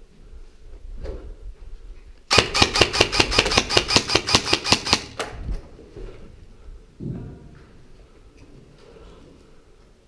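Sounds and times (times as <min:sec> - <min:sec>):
rapid airsoft gunfire: 0:02.3 - 0:05.2.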